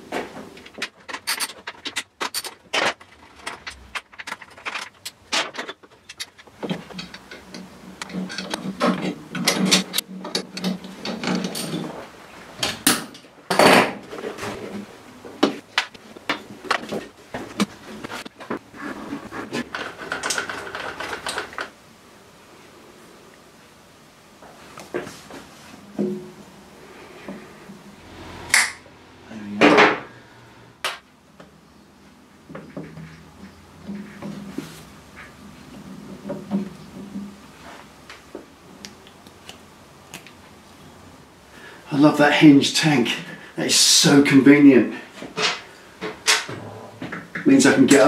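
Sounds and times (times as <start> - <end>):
tools and plastic parts clattering: 0.1 - 21.8
steady low hum: 25.2 - 33.8.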